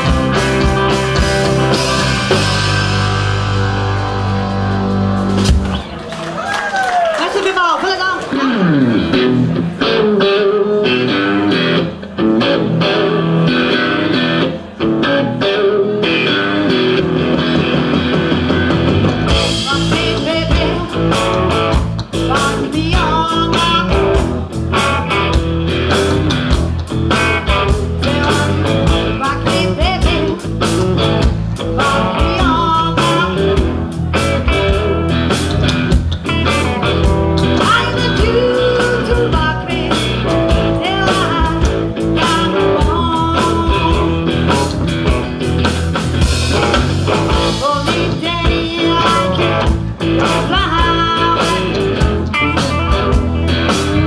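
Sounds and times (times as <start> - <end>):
bass guitar: 0.0 - 6.9, 8.3 - 54.0
electric guitars: 0.0 - 7.3, 8.0 - 54.0
woman singing lead: 19.3 - 24.3, 28.0 - 30.8, 31.6 - 33.8, 37.4 - 44.6, 47.3 - 53.5.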